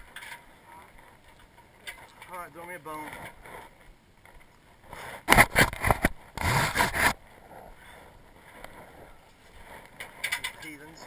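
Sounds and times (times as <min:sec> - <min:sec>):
ladder scraping: 0:05.3 - 0:07.2
metal ladder clanking: 0:10.0 - 0:10.8.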